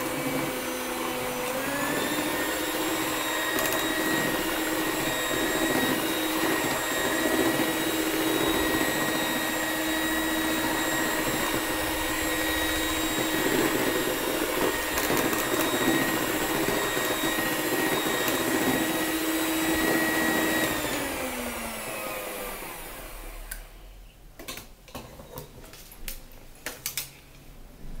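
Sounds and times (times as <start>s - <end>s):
electric hand mixer whine: 0.0s - 23.6s.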